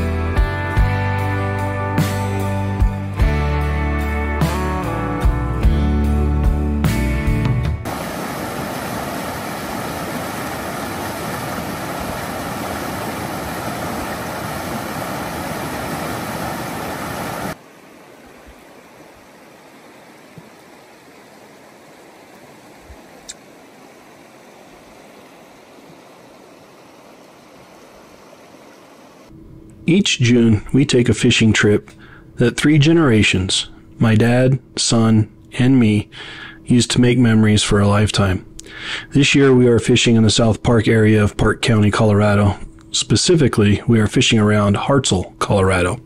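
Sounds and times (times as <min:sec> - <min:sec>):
river rushing over rapids: 0:07.9 - 0:29.3
shallow water rippling over rocks: 0:07.9 - 0:29.3.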